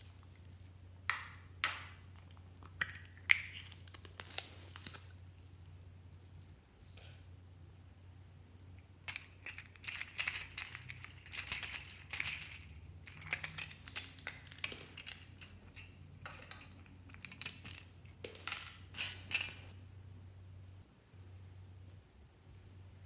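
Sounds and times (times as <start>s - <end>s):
spring toys rattling and clicking: 9.1s - 19.7s.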